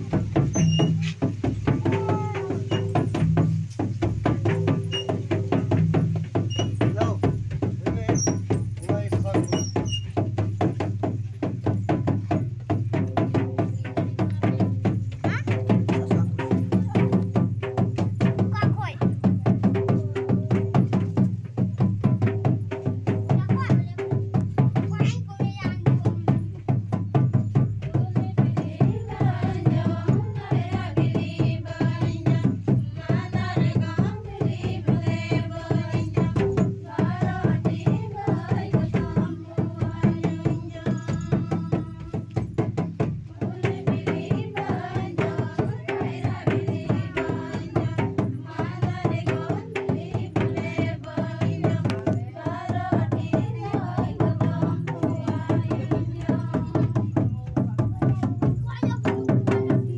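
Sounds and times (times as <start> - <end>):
hand drum beating: 0.0 - 59.9
women singing: 27.8 - 59.9.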